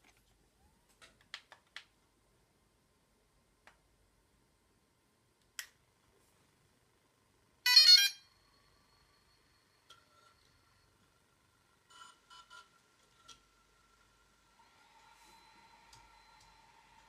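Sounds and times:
faint steady high tone: 7.3 - 17.0
electronic chime: 7.7 - 11.0.

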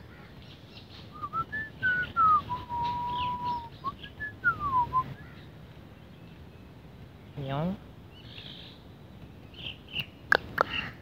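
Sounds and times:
person whistling a tune: 1.2 - 5.0.

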